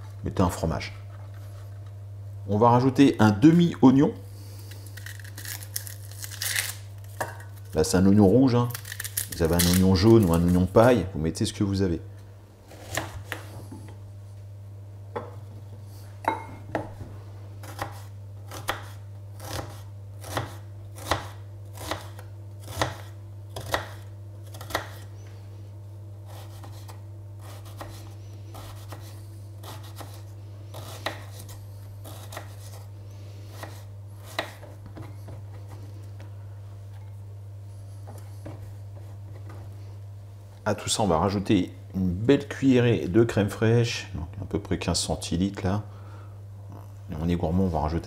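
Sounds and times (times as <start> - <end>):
knife chopping on wooden board: 17.6 - 25.0, 26.3 - 32.8, 33.5 - 35.5.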